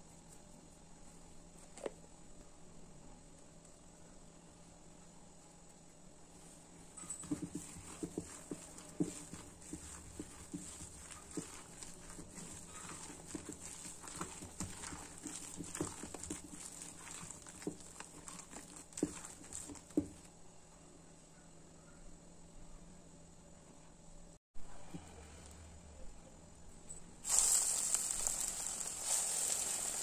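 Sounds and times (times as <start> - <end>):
hand squishing wet batter: 6.4 - 20.3.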